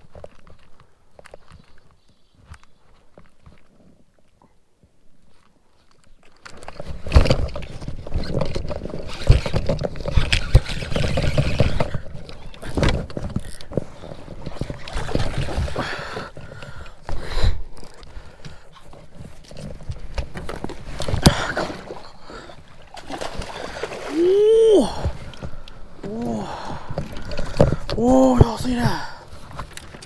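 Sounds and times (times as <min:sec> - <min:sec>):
water splashing: 0:20.4 - 0:30.0.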